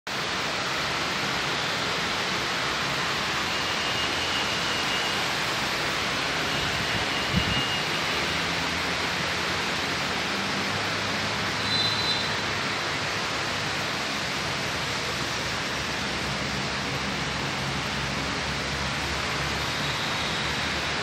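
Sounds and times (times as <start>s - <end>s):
road traffic rushing: 0.1s - 21.0s
faint high whistle: 11.6s - 12.4s.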